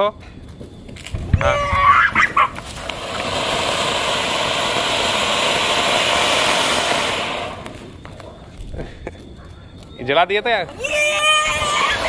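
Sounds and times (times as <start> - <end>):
firework spraying sparks with hiss: 1.0 - 8.2, 11.0 - 12.0.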